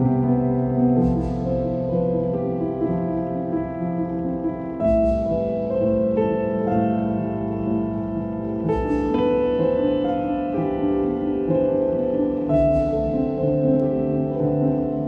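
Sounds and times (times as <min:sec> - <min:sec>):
instrumental music: 0:00.0 - 0:15.0.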